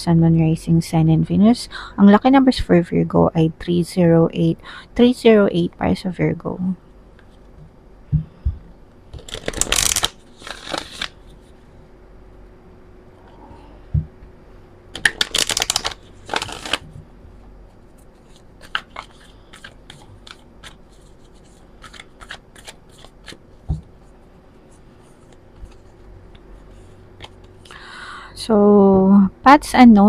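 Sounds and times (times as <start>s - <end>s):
cards being shuffled: 9.2s - 11.5s, 15.0s - 17.0s, 18.1s - 23.8s.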